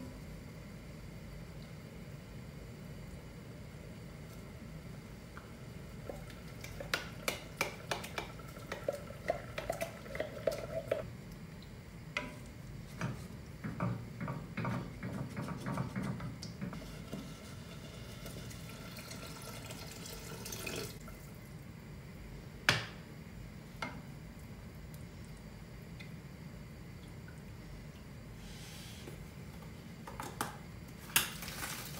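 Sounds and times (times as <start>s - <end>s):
wet stirring in a pot: 6.0s - 21.0s.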